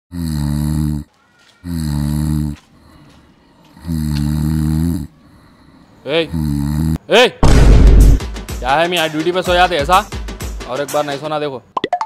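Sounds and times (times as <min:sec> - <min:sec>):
man snoring: 0:00.1 - 0:03.0, 0:03.7 - 0:07.0.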